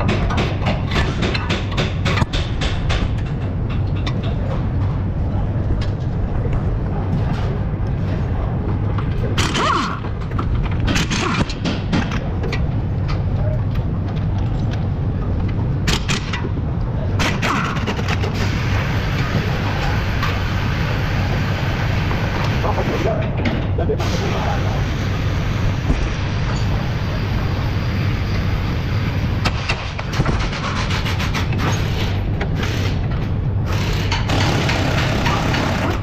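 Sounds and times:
steady low hum: 0:00.0 - 0:36.0.

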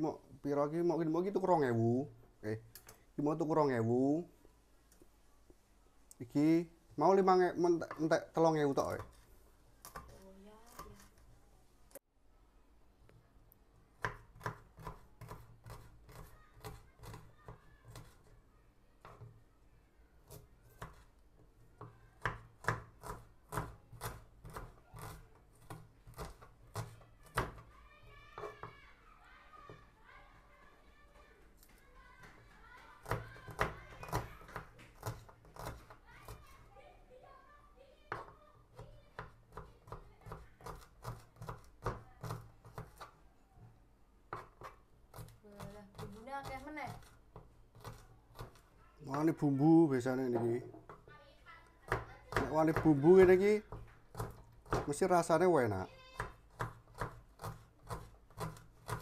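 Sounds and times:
knife chopping on wooden board: 0:14.0 - 0:18.2, 0:20.3 - 0:21.1, 0:21.8 - 0:27.6, 0:33.0 - 0:36.4, 0:38.1 - 0:43.1, 0:44.3 - 0:49.3, 0:51.9 - 0:55.1, 0:56.2 - 0:59.0.

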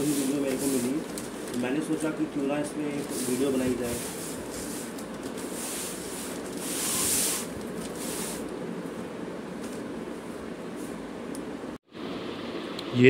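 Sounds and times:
plastic wrap crinkling: 0:00.0 - 0:02.3, 0:02.9 - 0:08.5
background hiss: 0:00.0 - 0:08.6.

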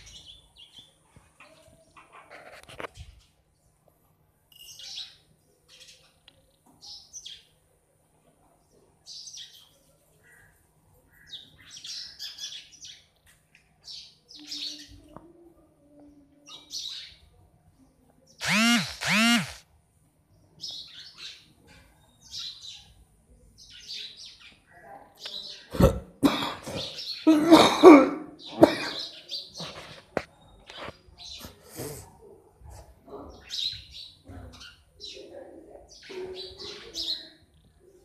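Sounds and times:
sparrows chirping: 0:00.0 - 0:02.1, 0:04.5 - 0:07.7, 0:09.0 - 0:15.1, 0:15.9 - 0:19.6, 0:20.3 - 0:25.7, 0:26.7 - 0:27.3, 0:28.4 - 0:31.7, 0:33.2 - 0:38.0.

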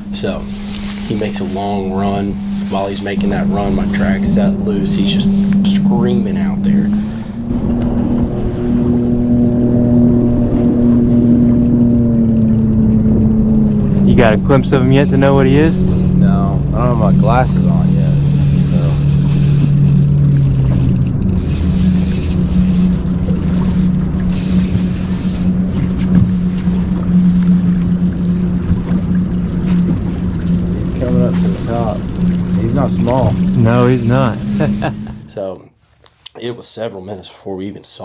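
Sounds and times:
boat motor humming: 0:00.0 - 0:35.6
water rumbling: 0:00.0 - 0:35.6
wind: 0:00.0 - 0:37.4.

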